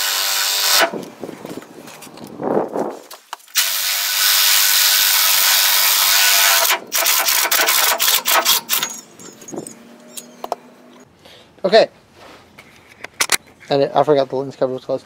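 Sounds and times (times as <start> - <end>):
cordless power tool running: 0.0 - 0.9, 3.6 - 8.8
metallic clicks and clatter: 6.6 - 10.6.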